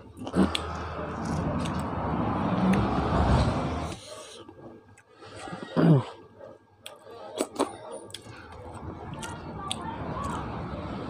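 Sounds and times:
chewing and wet mouth clicks: 0.2s - 1.9s, 6.8s - 10.5s.

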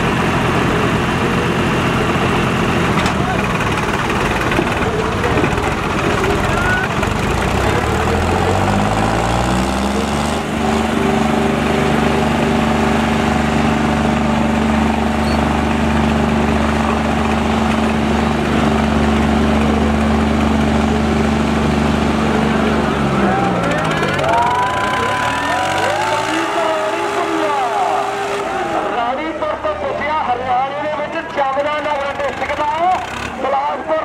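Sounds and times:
tractor diesel engine revving: 0.0s - 34.0s
voices: 4.4s - 8.8s, 23.1s - 34.0s.

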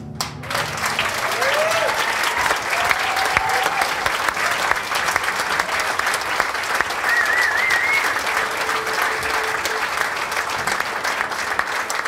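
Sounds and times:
audience applauding and cheering: 0.2s - 12.0s.

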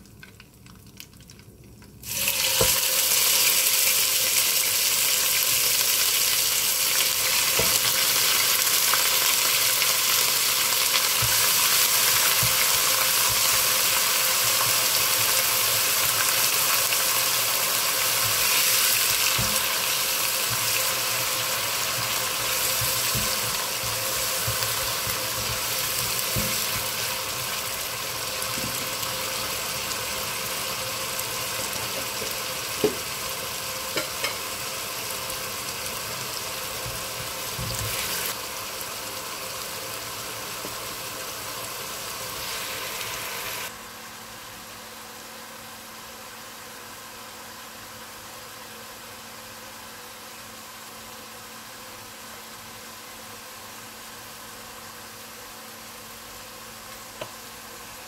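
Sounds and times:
paste sizzling in hot oil: 2.0s - 43.7s.

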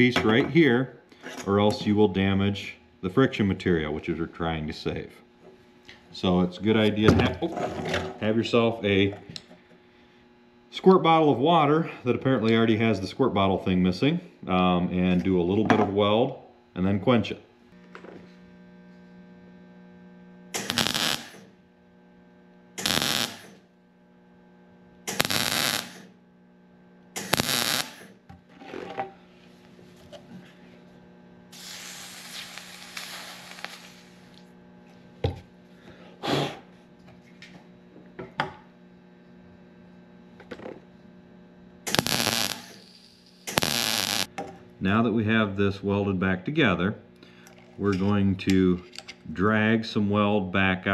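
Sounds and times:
electrical hum: 0.0s - 50.9s
welding arc crackle: 20.5s - 21.6s, 22.8s - 23.6s, 25.1s - 26.2s, 27.2s - 28.2s, 31.5s - 34.6s, 41.9s - 44.3s
soft hiss: 31.6s - 34.4s.

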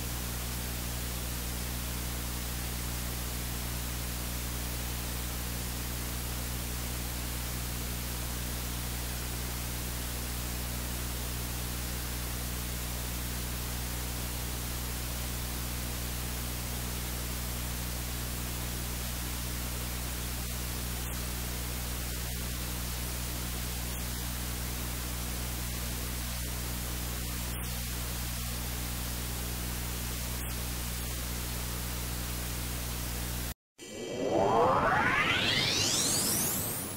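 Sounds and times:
static hiss: 18.0s - 33.5s.

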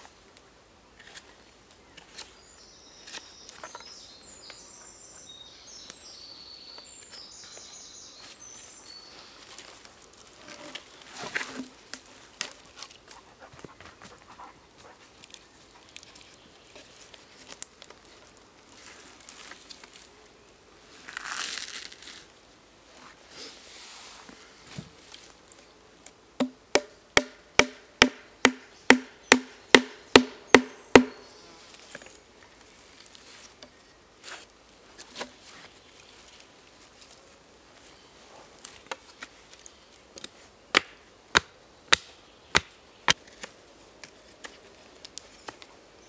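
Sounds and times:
small bird singing: 2.1s - 9.7s, 28.6s - 32.2s
dry leaves rustling: 5.7s - 14.2s, 14.8s - 25.7s, 29.6s - 40.5s.

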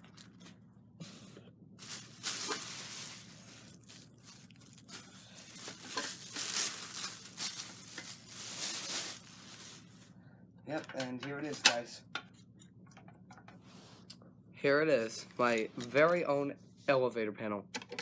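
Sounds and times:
packing material rustling and tearing: 0.0s - 0.6s, 1.8s - 10.1s.

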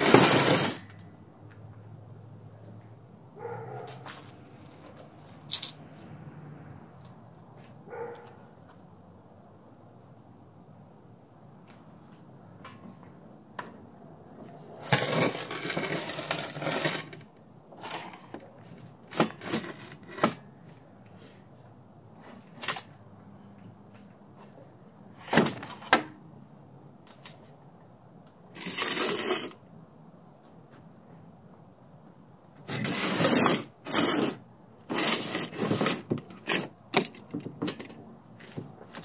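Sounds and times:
metal tubing scraping on table: 0.0s - 1.0s, 14.8s - 17.2s, 28.6s - 29.6s, 32.7s - 36.7s.

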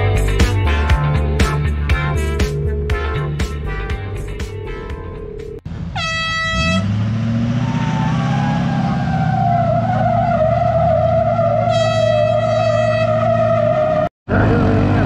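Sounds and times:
music: 0.0s - 5.6s
vehicle engine with wavering whine: 2.0s - 15.0s
air horn blast: 5.9s - 7.0s, 11.6s - 13.7s.

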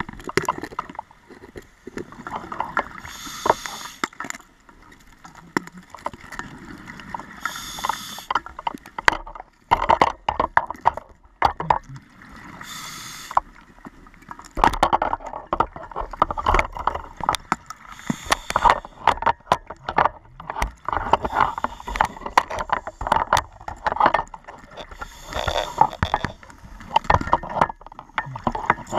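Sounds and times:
water sloshing and gurgling: 0.0s - 28.9s
knocks and clicks: 8.6s - 12.0s.

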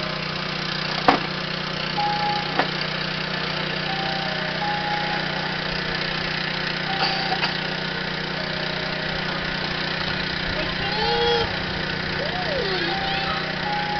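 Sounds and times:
engine idling: 0.0s - 13.9s
short high tones: 3.8s - 5.8s, 6.8s - 7.7s, 12.2s - 13.9s.

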